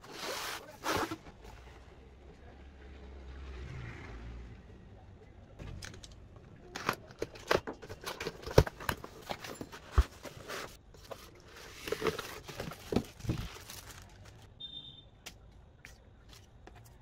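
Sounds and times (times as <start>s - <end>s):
cardboard knocks and scrapes: 0.0s - 1.4s, 8.0s - 14.0s
plastic bag crinkling: 11.3s - 14.5s.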